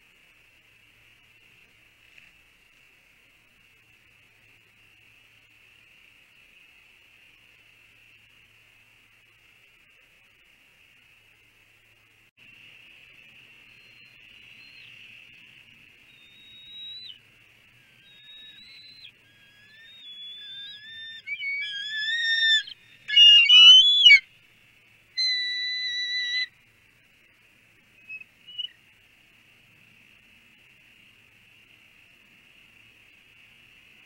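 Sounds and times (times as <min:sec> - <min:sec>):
eagles piping whistled calls: 0:16.1 - 0:17.2, 0:17.8 - 0:24.3, 0:25.2 - 0:26.5, 0:28.0 - 0:28.8.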